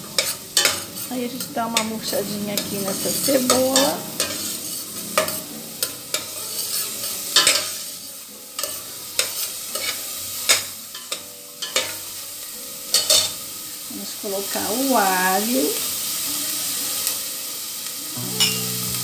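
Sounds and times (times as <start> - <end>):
onion sizzling in oil: 0.0 - 19.0
metal spoon scraping a pot: 0.1 - 7.8, 8.6 - 12.0.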